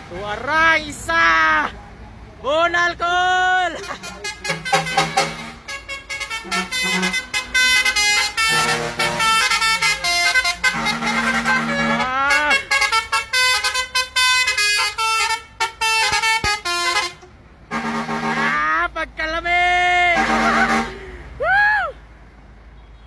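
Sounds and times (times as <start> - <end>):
truck air horns blaring: 3.7 - 19.0, 19.7 - 21.4.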